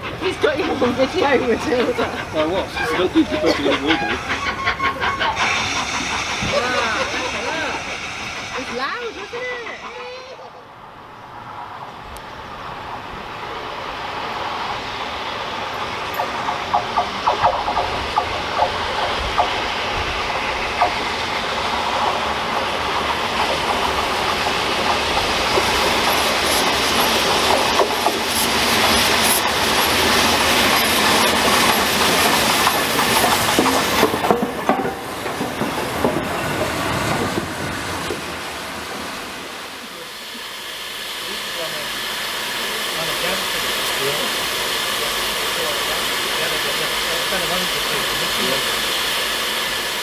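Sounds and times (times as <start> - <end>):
wheels clattering on rails: 0.0 - 10.4, 15.8 - 38.5
steam locomotive running past: 0.0 - 50.0.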